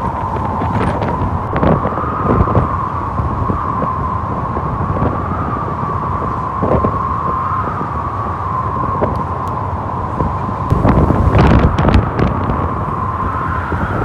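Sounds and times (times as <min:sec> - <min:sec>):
road noise: 0:00.0 - 0:14.0
wind rushing over microphone: 0:00.0 - 0:14.0
steady hum: 0:08.0 - 0:14.0.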